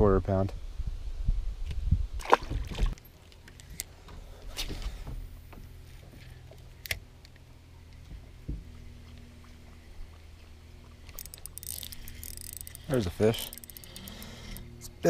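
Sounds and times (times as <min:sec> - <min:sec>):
fishing reel cranking: 0:11.0 - 0:14.8.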